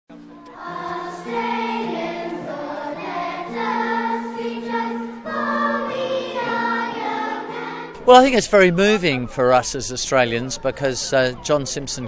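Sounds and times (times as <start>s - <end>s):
choir singing sustained chords: 0.1s - 8.1s.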